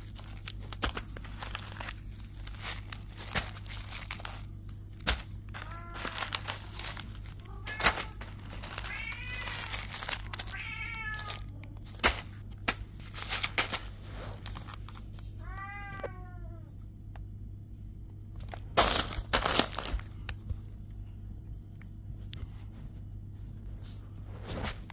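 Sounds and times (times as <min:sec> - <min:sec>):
plastic packets crinkling: 0:00.0 - 0:15.4, 0:18.4 - 0:20.4
steady low hum: 0:00.0 - 0:24.9
cat meowing: 0:05.6 - 0:06.4, 0:07.3 - 0:11.6, 0:15.4 - 0:16.7.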